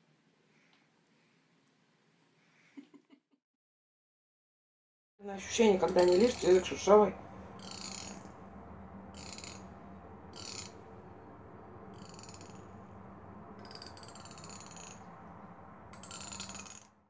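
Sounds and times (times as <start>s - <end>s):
steady low hum: 5.2s - 17.0s.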